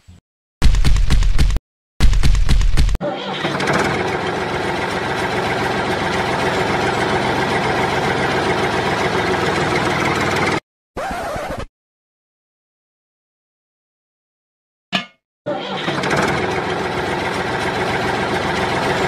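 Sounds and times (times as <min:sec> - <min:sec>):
tractor engine starting and idling: 0:03.2 - 0:10.6, 0:15.5 - 0:19.0.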